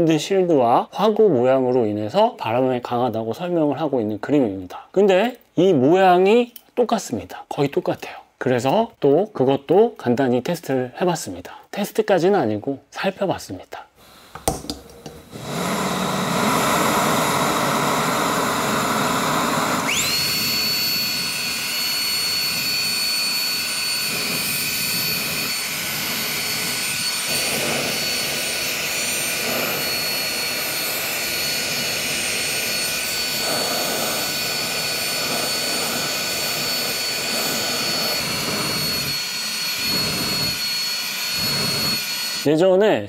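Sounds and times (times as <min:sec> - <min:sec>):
electric air pump running: 0:14.0 - 0:42.5
gas flame rushing: 0:14.0 - 0:42.5
thin high whine: 0:15.1 - 0:42.6.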